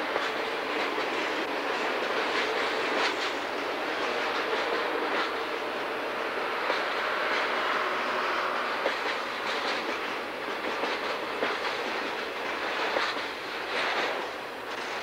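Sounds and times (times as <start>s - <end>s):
wheels clicking over rail joints: 0.0s - 5.4s, 8.7s - 15.0s
steel wheels rolling on rail: 0.0s - 15.0s.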